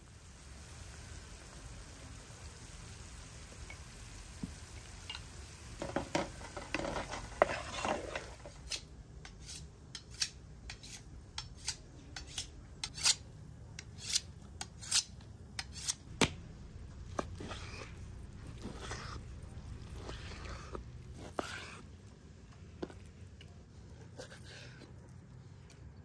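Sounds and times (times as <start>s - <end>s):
knife scraping on sharpening steel: 6.9s - 16.1s, 18.6s - 21.9s.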